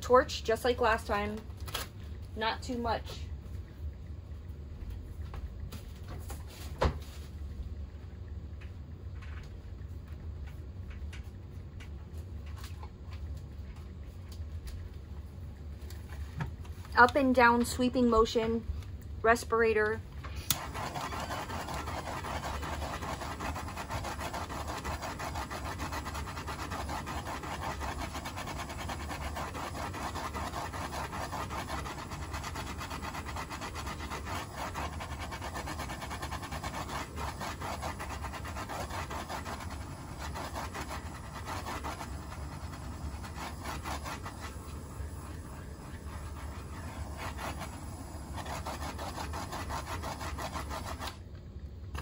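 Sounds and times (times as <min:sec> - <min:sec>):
torch flame hissing: 0:20.4 - 0:51.2.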